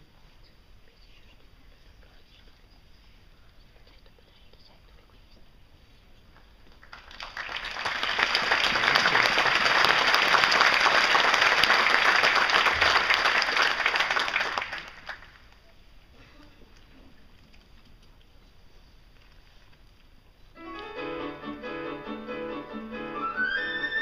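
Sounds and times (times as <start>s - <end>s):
audience applauding: 6.7s - 15.6s.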